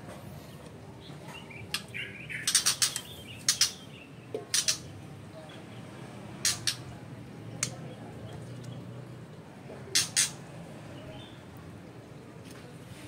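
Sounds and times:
bird harsh call notes: 0:01.5 - 0:04.9.

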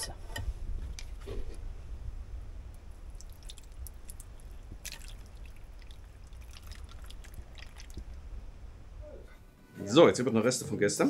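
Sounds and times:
low steady hum: 0:00.0 - 0:10.4
sauce splatting and dripping: 0:03.0 - 0:08.2.

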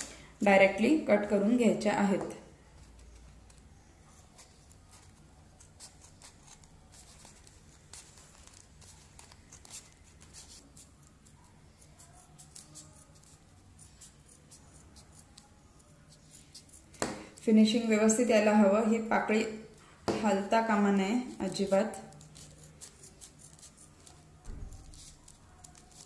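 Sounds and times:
scissors cutting paper: 0:02.8 - 0:18.3, 0:21.2 - 0:26.0.

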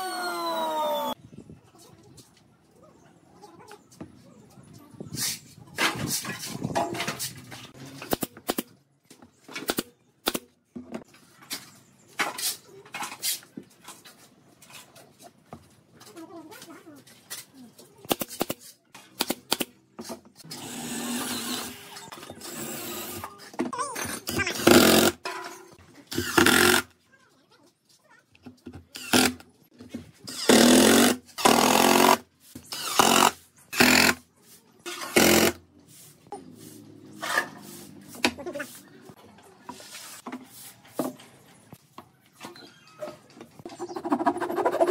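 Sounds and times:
impact driver hammering screws into wood: 0:24.3 - 0:25.2, 0:26.1 - 0:26.9, 0:29.0 - 0:29.4, 0:30.3 - 0:34.2, 0:34.9 - 0:35.6.

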